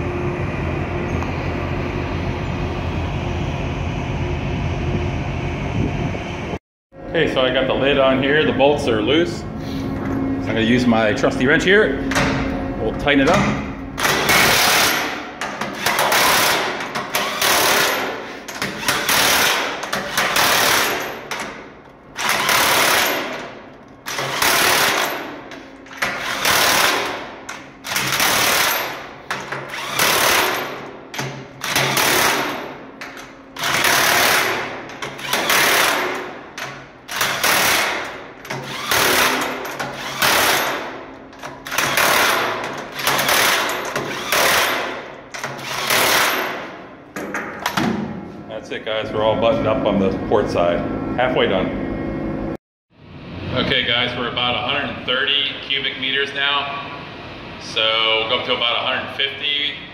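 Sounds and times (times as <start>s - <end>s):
impact wrench hammering: 13.3s - 21.6s, 22.2s - 48.1s.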